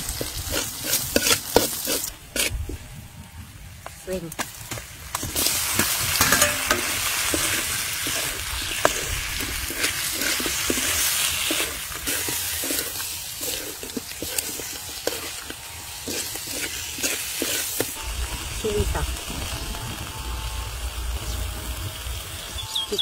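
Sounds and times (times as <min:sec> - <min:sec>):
shrimp sizzling in hot oil: 0:00.0 - 0:02.5, 0:04.6 - 0:23.0
stirring scrapes against pan: 0:00.1 - 0:02.6, 0:05.3 - 0:18.0.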